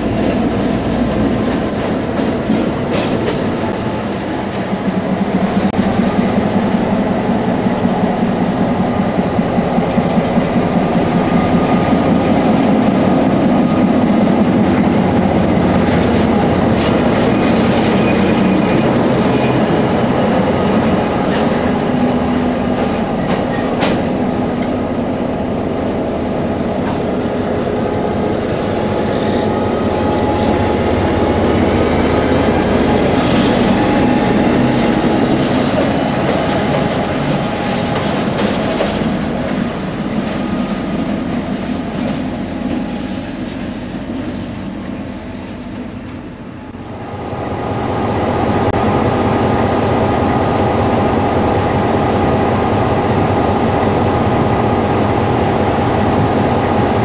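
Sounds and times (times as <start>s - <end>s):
diesel locomotive engine: 0.0s - 57.0s
thin high squeals: 17.2s - 19.7s.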